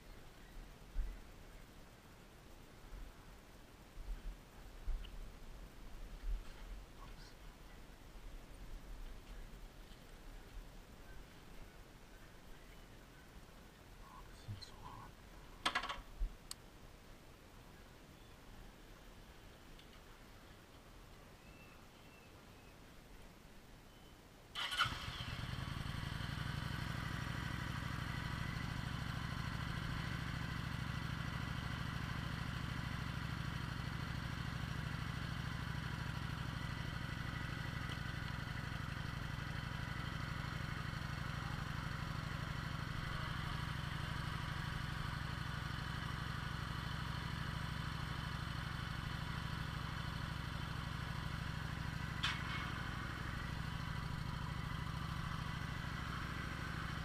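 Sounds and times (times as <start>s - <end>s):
motorcycle engine starting and idling: 15.7s - 16.1s, 24.5s - 57.0s.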